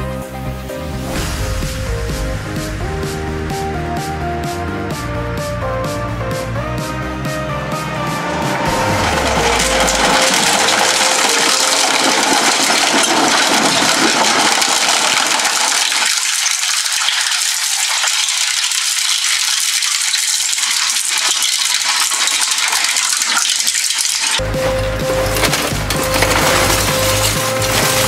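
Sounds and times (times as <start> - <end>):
shredder tearing plastic: 8.7 - 28.0.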